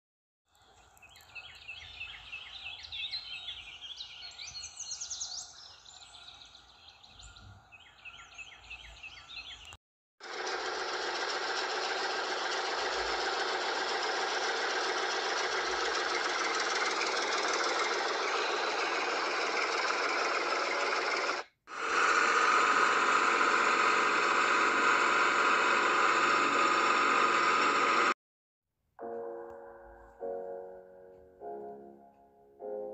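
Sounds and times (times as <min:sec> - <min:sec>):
tractor engine knocking: 0:10.3 - 0:21.4
high repeated chirping: 0:16.5 - 0:20.0.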